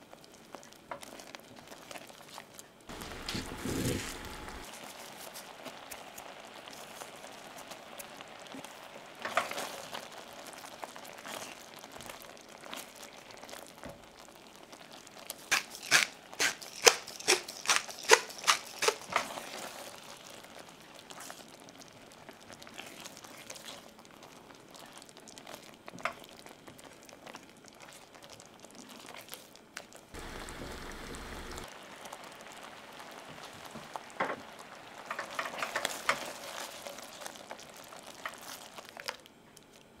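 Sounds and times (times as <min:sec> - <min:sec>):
faint crackle from pan: 0:00.0 - 0:40.0
spatula scraping a pan: 0:02.9 - 0:04.6.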